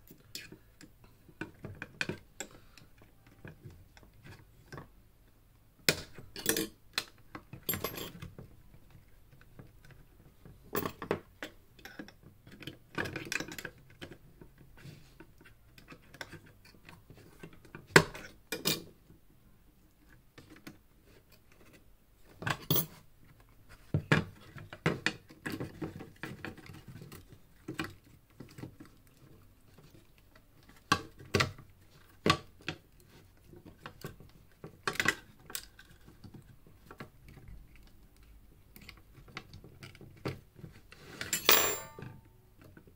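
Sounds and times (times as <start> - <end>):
tools and parts clinking: 7.6 - 8.3, 10.7 - 11.1, 22.6 - 23.0, 41.2 - 42.3.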